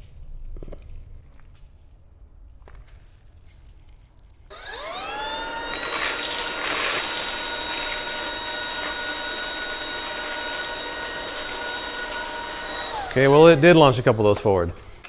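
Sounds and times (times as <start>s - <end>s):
cereal rattling in vacuum: 0.0s - 13.6s
vacuum motor whine: 4.5s - 15.0s.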